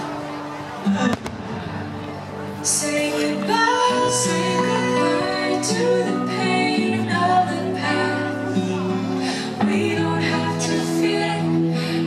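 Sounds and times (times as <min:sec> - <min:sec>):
woman singing: 0:02.6 - 0:12.0.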